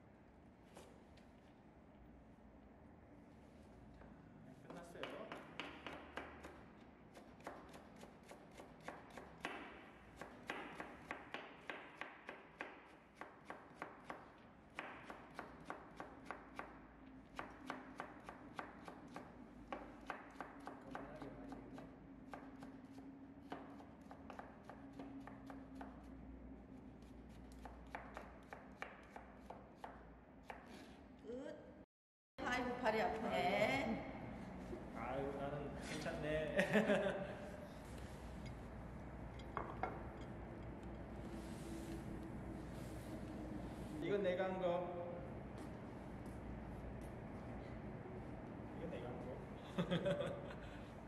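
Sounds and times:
knife chopping on cutting board: 5.0s - 26.1s, 27.0s - 30.8s.

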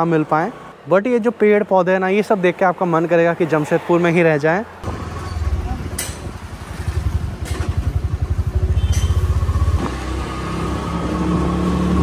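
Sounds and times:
auto-rickshaw engine running: 4.8s - 12.0s.

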